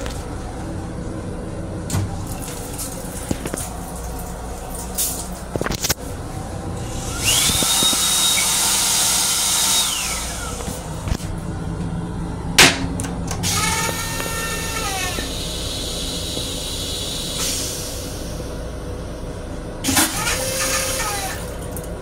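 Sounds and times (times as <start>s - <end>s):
flush motor whine: 0.0s - 22.0s.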